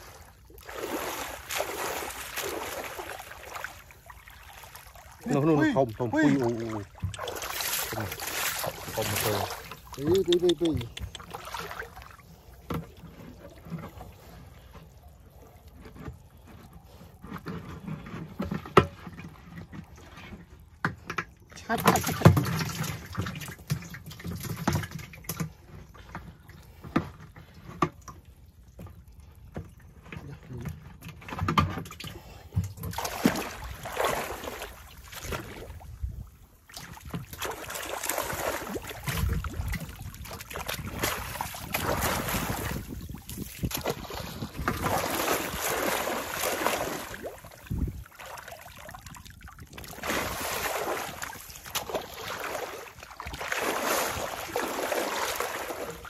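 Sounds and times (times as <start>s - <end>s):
fishing rake sweeping through water: 0.0s - 5.2s, 6.4s - 10.2s, 32.9s - 35.9s, 36.7s - 56.0s
muddy water sloshing and splashing: 0.0s - 56.0s.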